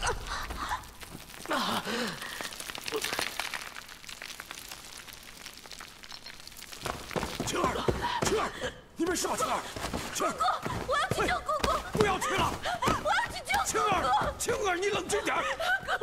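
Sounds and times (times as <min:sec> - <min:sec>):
people groaning and gasping: 0:00.0 - 0:03.6, 0:07.3 - 0:16.0
debris crackling: 0:00.0 - 0:15.4.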